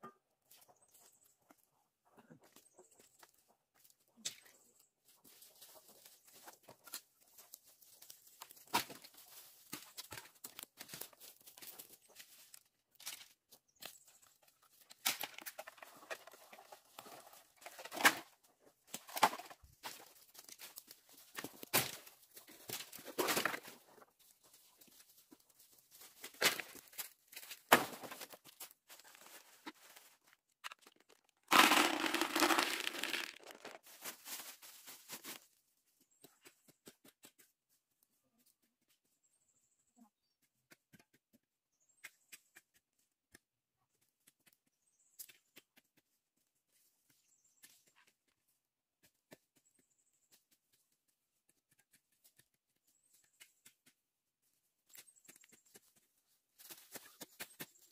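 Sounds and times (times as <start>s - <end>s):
dry leaves and twigs crackling: 3.1s - 35.6s
seed kernels poured into plastic bucket: 31.4s - 33.8s.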